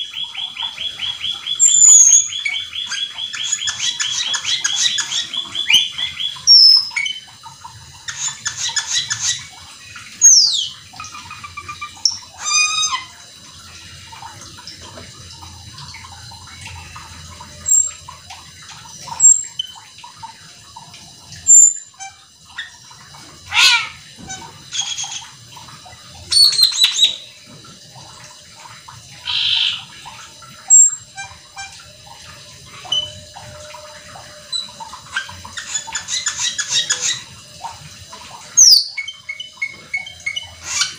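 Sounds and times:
starling singing: 0:23.5 - 0:24.0, 0:29.2 - 0:29.9.

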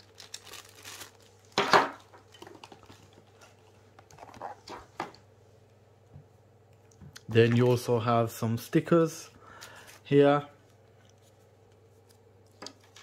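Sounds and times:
cardboard and plastic rustling: 0:00.0 - 0:05.2
faint steady hum: 0:00.0 - 0:13.0.

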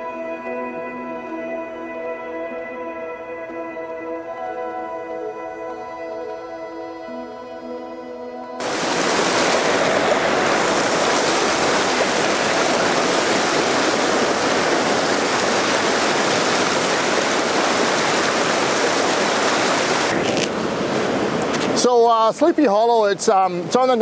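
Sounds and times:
soft background music: 0:00.0 - 0:08.6
waterfall pouring over rocks: 0:08.6 - 0:22.0.

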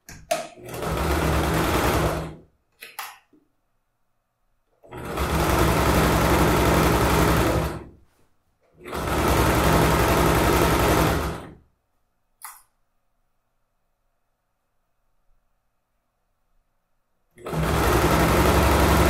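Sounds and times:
sewing machine stitching: 0:00.4 - 0:02.4, 0:04.8 - 0:08.0, 0:08.8 - 0:11.6, 0:17.4 - 0:19.0.

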